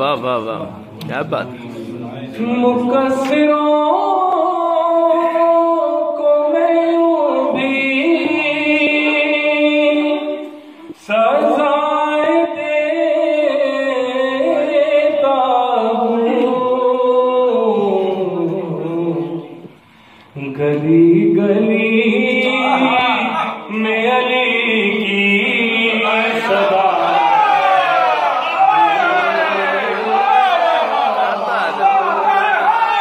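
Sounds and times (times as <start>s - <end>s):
man singing unaccompanied: 2.3s - 19.7s, 20.4s - 27.3s.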